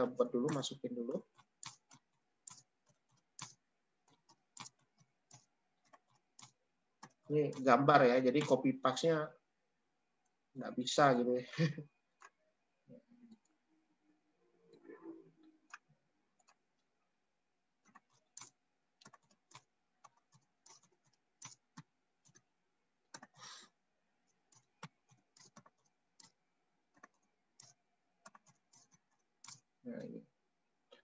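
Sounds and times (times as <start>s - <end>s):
computer keyboard keystrokes: 0.4s - 7.7s, 17.8s - 22.4s, 23.1s - 23.5s, 24.5s - 29.7s.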